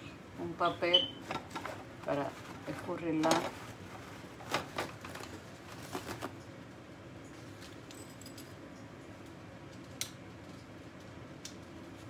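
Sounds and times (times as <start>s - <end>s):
paper towel rustling: 1.4s - 6.4s.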